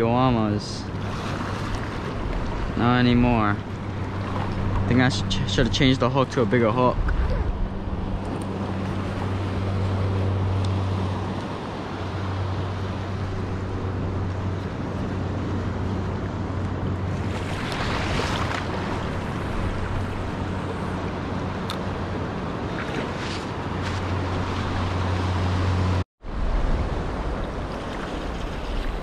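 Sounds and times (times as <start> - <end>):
steady low hum: 0.0 - 27.8
wind on microphone: 0.8 - 11.6
water washing over rocks: 17.2 - 20.3.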